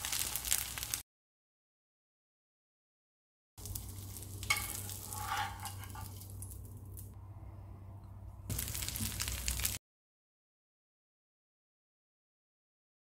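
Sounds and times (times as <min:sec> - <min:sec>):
batter sizzling in oil: 0:00.0 - 0:01.0, 0:03.6 - 0:07.2, 0:08.5 - 0:09.8
metal spatula scraping: 0:04.1 - 0:06.4.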